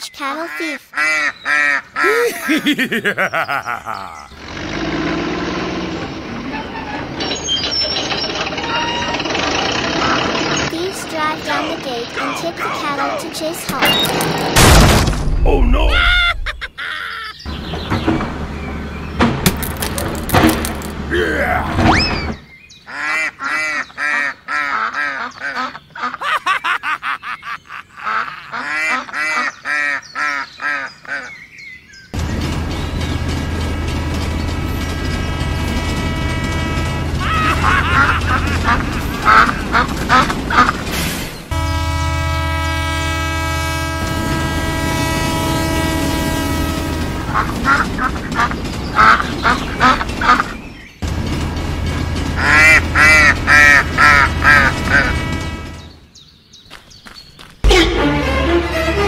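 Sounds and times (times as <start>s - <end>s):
geese honking: 1.0s - 2.6s, 22.9s - 26.3s, 34.4s - 40.9s, 41.5s - 50.6s, 52.3s - 56.0s
rapid laughing voice: 2.0s - 4.4s, 15.7s - 17.4s, 25.0s - 29.2s, 37.2s - 40.8s.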